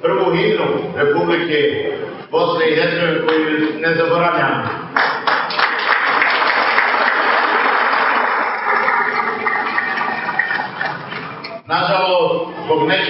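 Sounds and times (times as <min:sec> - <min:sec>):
audience applauding: 0:05.0 - 0:11.5.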